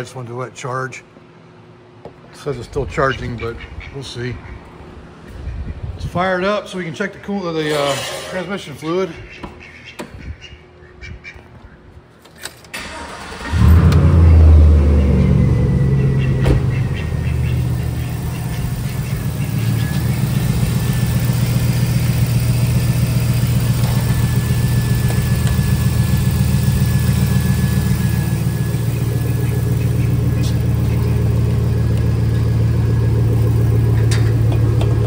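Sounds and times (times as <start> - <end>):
engine idling: 12.8 - 35.0.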